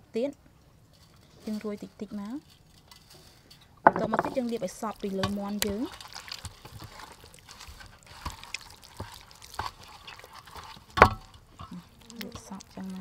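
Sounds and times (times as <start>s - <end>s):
hands squelching on raw chicken: 4.4s - 13.0s.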